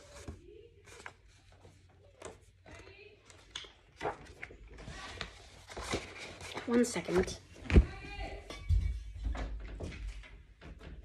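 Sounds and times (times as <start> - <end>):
book rustling: 0.0 - 7.4.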